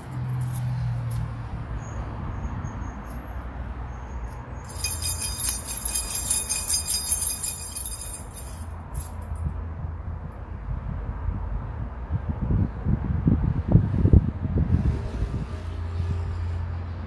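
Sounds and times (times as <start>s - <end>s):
bright metallic jingling: 3.0s - 9.4s
wind rumble on microphone: 8.8s - 17.0s.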